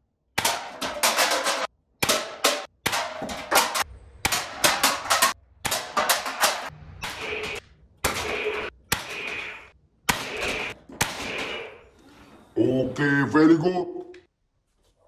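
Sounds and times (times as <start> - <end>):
darts hitting cans: 0.4 - 11.7.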